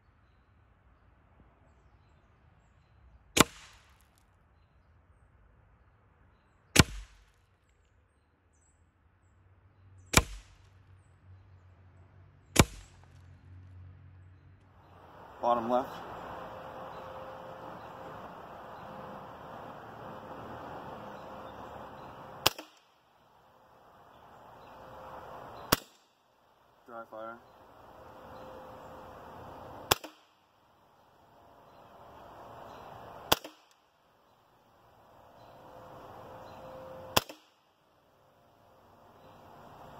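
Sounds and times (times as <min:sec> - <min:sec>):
air rifle shots: 0:03.4 - 0:03.9, 0:06.8 - 0:07.3, 0:10.2 - 0:10.6, 0:12.6 - 0:13.0, 0:21.3 - 0:23.0, 0:24.6 - 0:26.1, 0:28.1 - 0:30.4, 0:32.8 - 0:33.8, 0:37.0 - 0:37.6.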